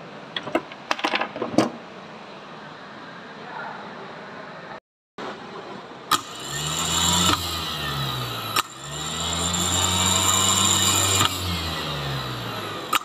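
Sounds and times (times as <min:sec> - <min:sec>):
starter motor humming and whining: 0:06.1 - 0:13.0.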